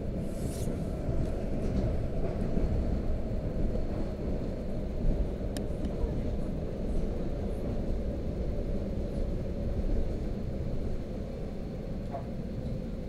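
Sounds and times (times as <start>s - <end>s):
train rumbling along track: 0.0s - 13.0s.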